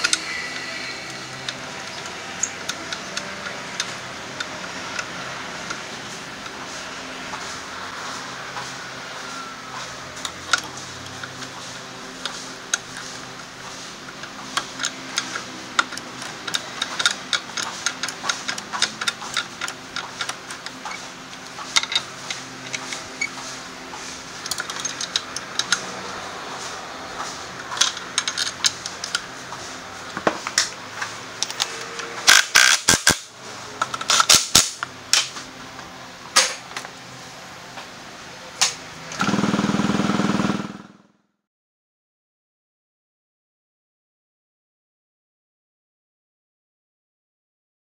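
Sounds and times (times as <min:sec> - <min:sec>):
ratchet wrench clicking: 0:14.1 - 0:23.4, 0:24.4 - 0:26.0, 0:27.2 - 0:29.3, 0:31.4 - 0:35.4.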